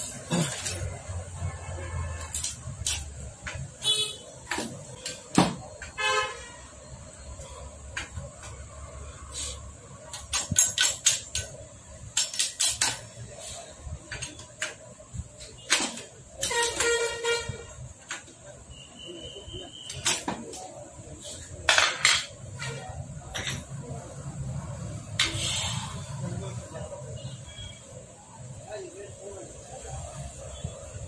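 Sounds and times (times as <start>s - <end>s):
vehicle horn toots: 6.0s - 6.6s.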